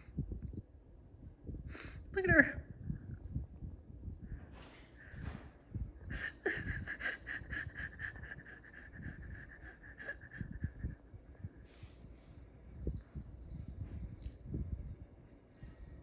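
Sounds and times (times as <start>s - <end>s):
small bell jingling: 8.4s - 9.8s, 12.6s - 16.0s.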